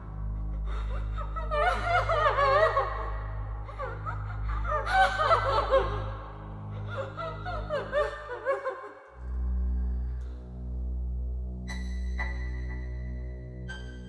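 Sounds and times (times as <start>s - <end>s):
low music drone: 0.0s - 14.0s
person laughing: 0.5s - 6.2s, 6.8s - 9.1s.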